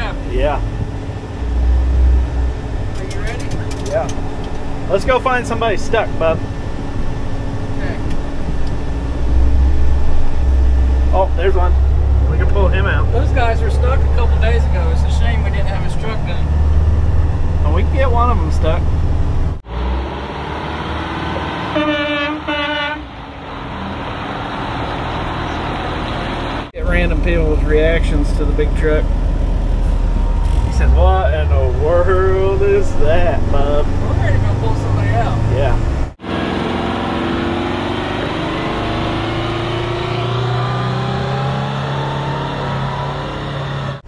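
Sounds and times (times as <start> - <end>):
truck driving: 0.0 - 44.0
truck horn blasts: 21.4 - 23.2.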